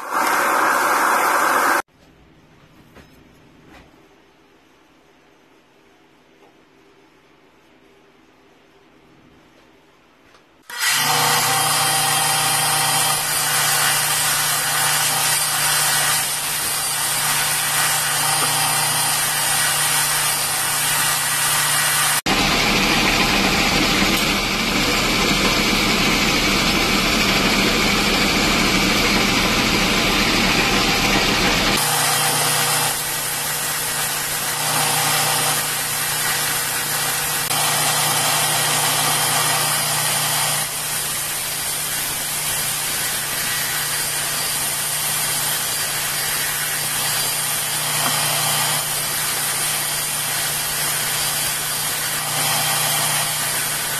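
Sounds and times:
belt grinder motor hum: 10.7 - 41.6, 42.6 - 53.9.

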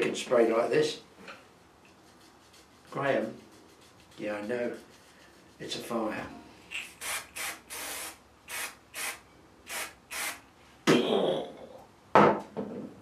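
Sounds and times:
aerosol spray hissing bursts: 6.8 - 10.4.

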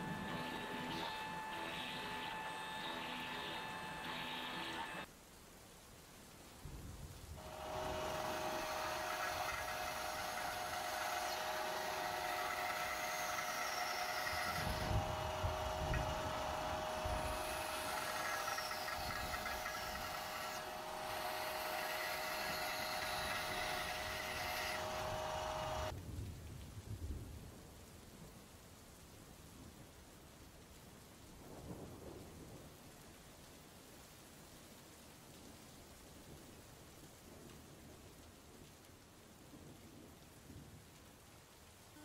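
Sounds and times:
bandsaw cutting wood: 0.0 - 5.0, 7.4 - 25.9.

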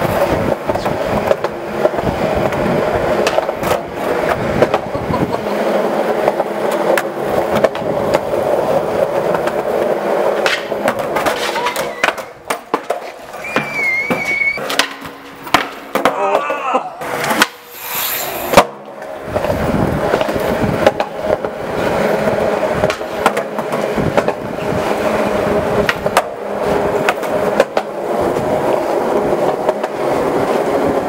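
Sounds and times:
skateboard wheels rolling on concrete: 0.0 - 31.0
skateboard knocking on ground: 3.2 - 5.5, 6.2 - 8.3, 10.4 - 16.6, 18.5 - 21.6, 22.8 - 24.4, 27.0 - 28.0, 29.6 - 30.0.

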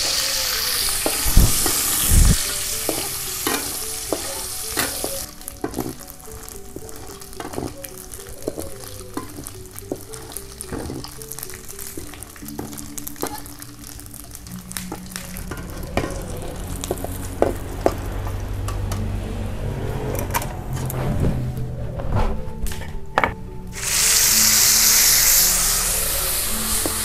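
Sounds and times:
fish sizzling in oil: 0.0 - 18.3, 23.8 - 27.0
background music: 0.0 - 27.0.

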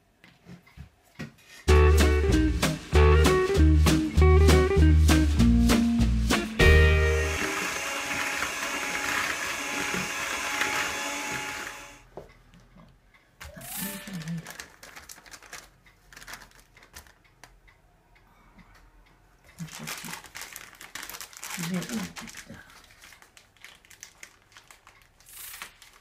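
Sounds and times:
swing music: 1.7 - 7.6
electric hand mixer running: 6.7 - 12.0
paper bag rustling: 13.8 - 17.2, 19.6 - 26.0.

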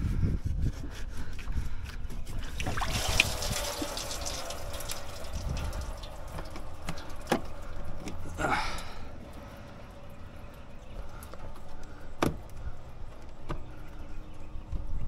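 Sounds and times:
coolant trickling and splashing: 2.0 - 15.0
handling thumps: 11.3 - 13.8.

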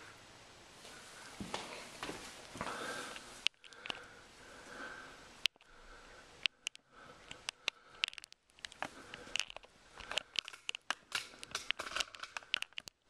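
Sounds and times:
camera handling clicks and crackles: 6.4 - 13.0.

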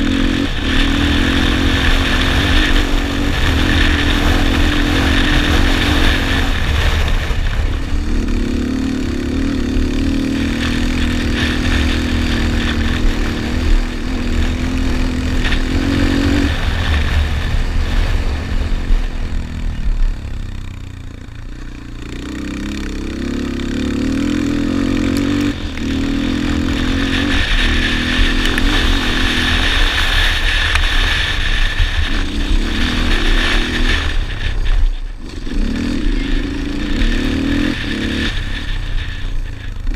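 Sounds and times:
quad engine revving: 0.0 - 39.9.

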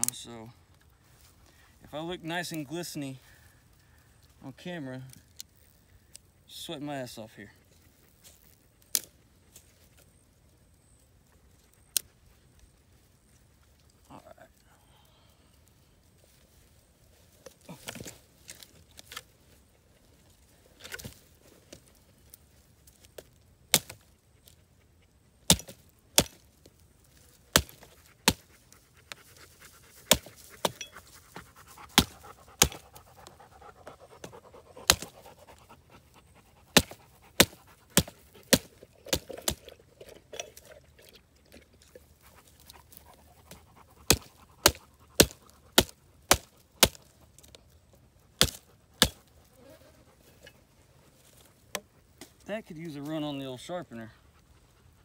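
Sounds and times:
person panting: 14.6 - 15.6
hatchet chopping sticks: 25.5 - 26.4, 32.0 - 32.9, 34.8 - 35.2, 36.8 - 39.6.

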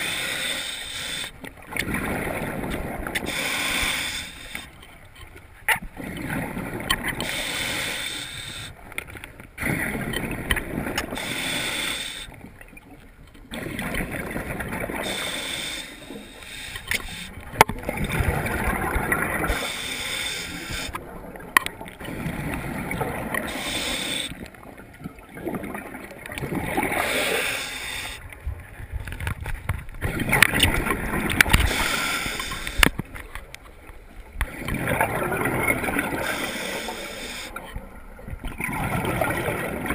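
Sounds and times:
diver inhaling through regulator: 0.0 - 1.4, 3.2 - 4.8, 7.2 - 8.8, 11.1 - 12.4, 15.0 - 17.4, 19.4 - 21.0, 23.4 - 24.4, 26.9 - 28.2, 31.5 - 33.0, 36.1 - 37.6
exhaled bubbles rushing: 17.5 - 19.6, 34.4 - 36.2.

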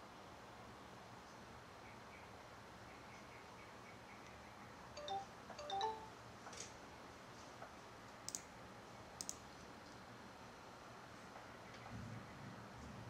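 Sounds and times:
faint sharp double clicks: 9.2 - 9.5.

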